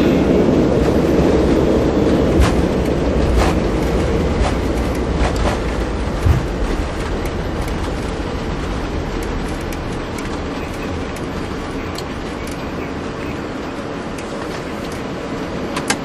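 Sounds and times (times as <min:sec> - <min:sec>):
airliner rumble and rush: 0:00.0 - 0:16.0.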